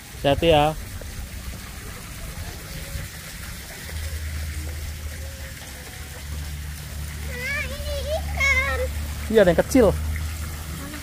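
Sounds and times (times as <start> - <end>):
water splashing into a pond: 0.0 - 11.0.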